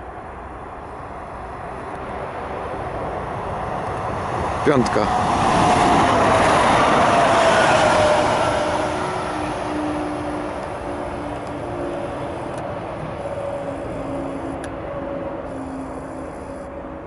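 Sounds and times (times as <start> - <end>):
electric train passing at speed: 0.0 - 17.0
train motor whine: 7.8 - 17.0.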